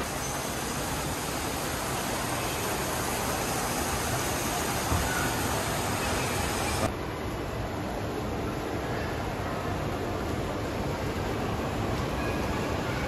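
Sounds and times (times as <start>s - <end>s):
fountain water hiss: 0.0s - 6.9s
distant crowd murmur: 0.0s - 13.0s.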